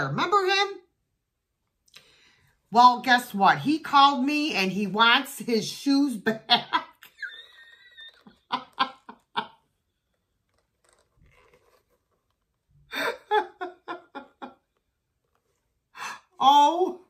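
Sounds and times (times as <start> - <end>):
woman laughing: 6.3 - 9.6, 12.9 - 14.7.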